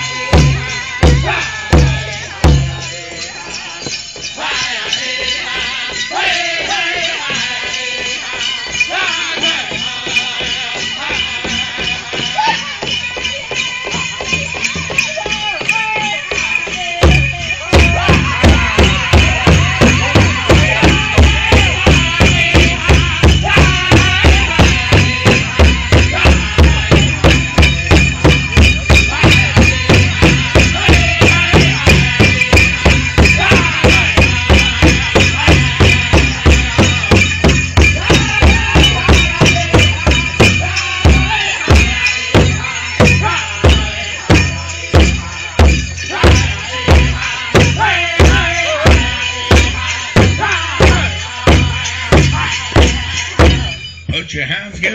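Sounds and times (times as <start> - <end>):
people singing: 0.0 - 53.9
bells jingling: 0.0 - 54.9
big drum beating: 17.0 - 53.8.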